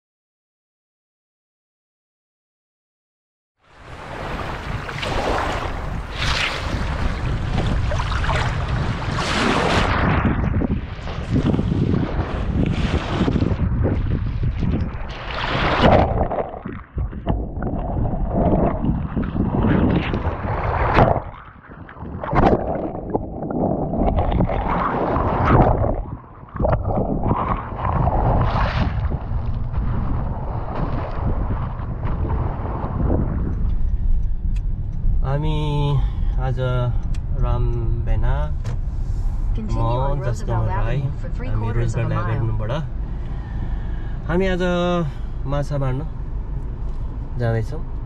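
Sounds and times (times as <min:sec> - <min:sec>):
wind buffeting microphone: 0:04.0 - 0:35.7.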